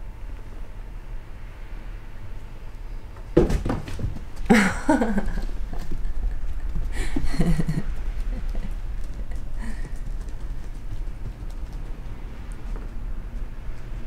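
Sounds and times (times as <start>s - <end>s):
sudden thump: 3.4s - 4.2s.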